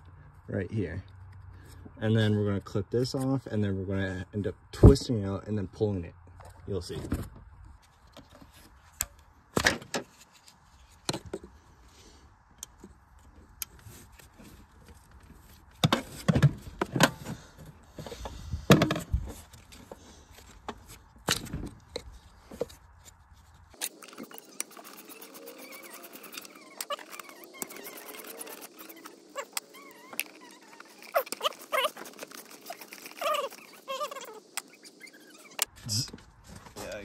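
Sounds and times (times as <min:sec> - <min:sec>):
hand tools clicking and knocking: 0:23.8 - 0:35.7.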